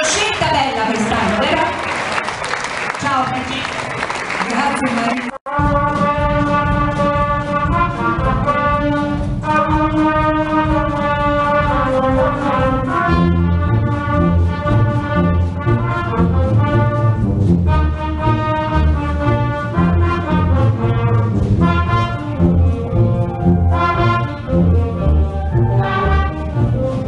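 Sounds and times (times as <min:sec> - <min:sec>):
low bass with steady beat: 0:05.5 - 0:27.0
wind band playing chords: 0:05.5 - 0:27.0.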